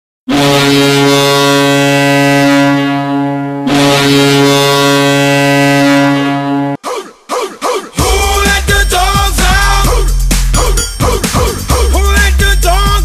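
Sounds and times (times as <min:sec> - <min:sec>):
goal horn blasts: 0:00.3 - 0:06.8.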